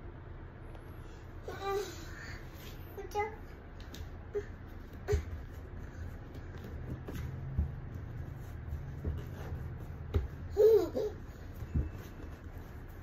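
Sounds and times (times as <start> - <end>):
toddler laughing: 10.5 - 11.3.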